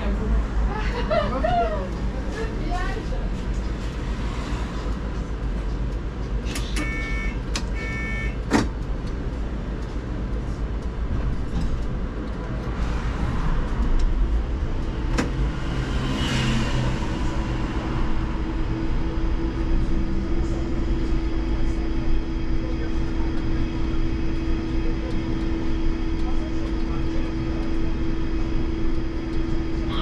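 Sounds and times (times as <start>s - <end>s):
steady hum: 0.0s - 30.0s
trolleybus rolling rumble: 0.0s - 30.0s
short beeps: 6.7s - 8.4s.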